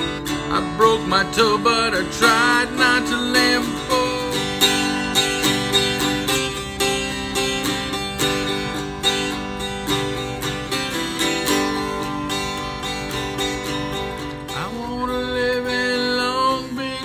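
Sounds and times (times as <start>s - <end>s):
acoustic guitar strumming chords: 0.0s - 17.0s.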